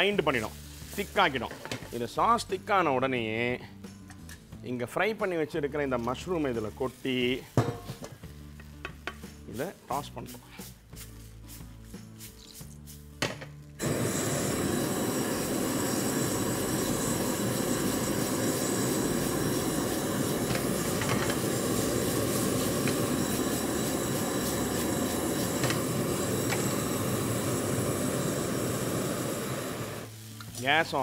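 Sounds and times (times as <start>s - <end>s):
gas flame rushing: 13.8s - 31.0s.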